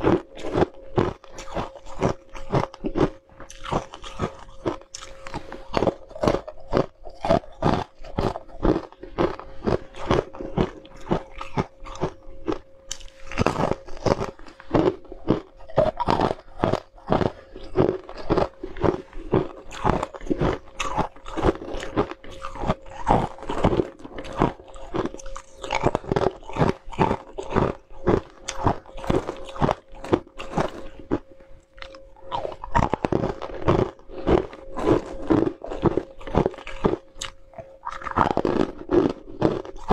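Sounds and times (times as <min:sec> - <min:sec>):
ice being chewed: 0:00.0 - 0:39.9.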